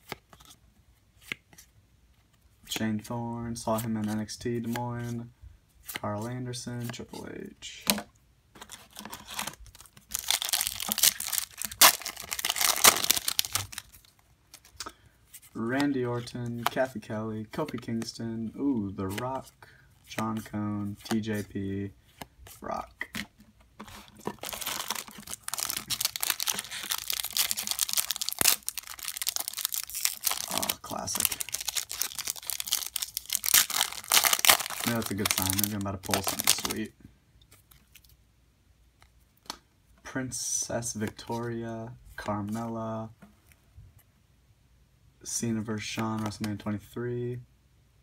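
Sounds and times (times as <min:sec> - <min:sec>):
foil wrapper crinkling: 0:08.7 - 0:14.7, 0:24.0 - 0:36.8
foil wrapper ripping: 0:09.0 - 0:13.9, 0:24.3 - 0:36.8.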